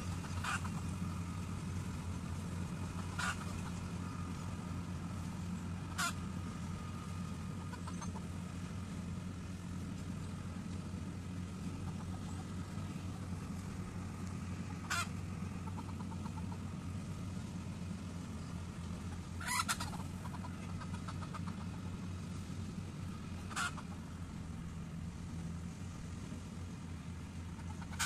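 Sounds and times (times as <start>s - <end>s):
combine harvester engine droning: 0.0s - 28.0s
bird calls: 7.5s - 8.4s.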